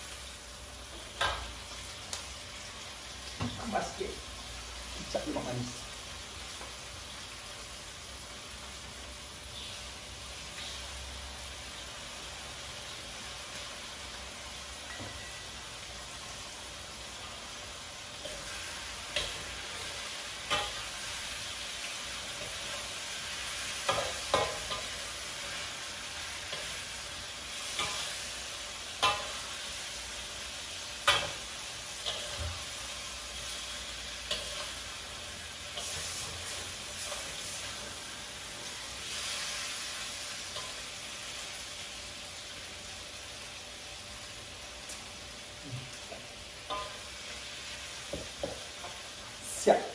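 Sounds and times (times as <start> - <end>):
pan sizzling: 0.0 - 49.9
metal spatula scraping a wok: 18.2 - 30.2, 30.9 - 38.1.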